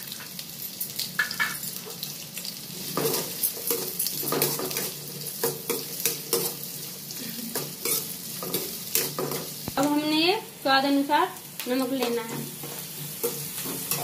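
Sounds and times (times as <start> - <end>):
onions sizzling in hot oil: 0.0 - 14.0
spoon clinking and scraping pan: 2.9 - 6.7, 7.6 - 9.6, 12.0 - 14.0.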